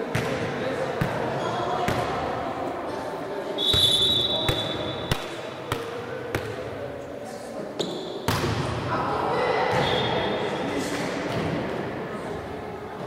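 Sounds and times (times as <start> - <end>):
referee's whistle blast: 3.6 - 5.0
volleyball bouncing on floor: 3.7 - 6.6.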